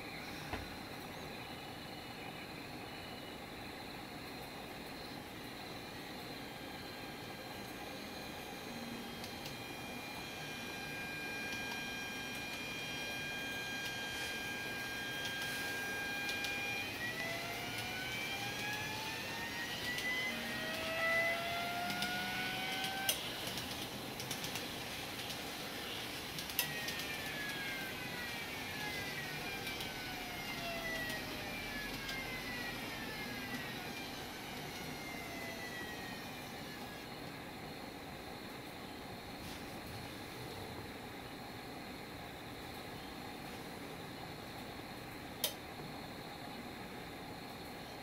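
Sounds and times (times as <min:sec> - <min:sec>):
model train motor whining tones: 0:06.6 - 0:37.2.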